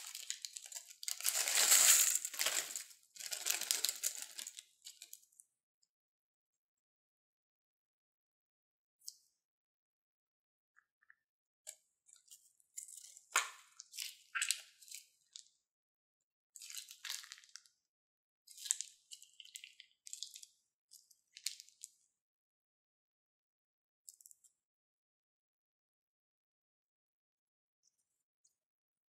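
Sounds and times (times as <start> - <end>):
slime squelching and crackling: 0.0 - 5.2, 12.9 - 15.0.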